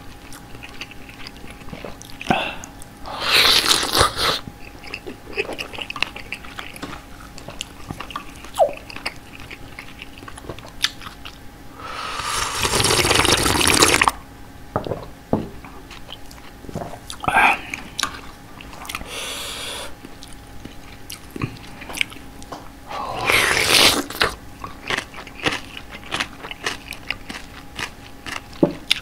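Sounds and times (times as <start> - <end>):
soft chewing: 0.0 - 11.4, 15.6 - 19.1, 19.9 - 22.7, 23.6 - 29.0
loud slurp of soup: 11.8 - 14.1, 23.1 - 24.2.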